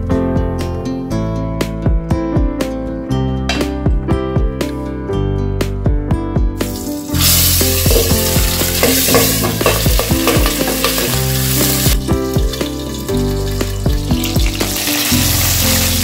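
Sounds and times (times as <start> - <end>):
fish sizzling in hot oil: 6.6 - 16.0.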